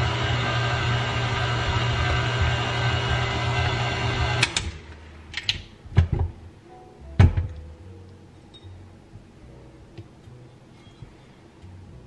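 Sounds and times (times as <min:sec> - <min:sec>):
stand mixer kneading dough: 0:00.0 - 0:04.6.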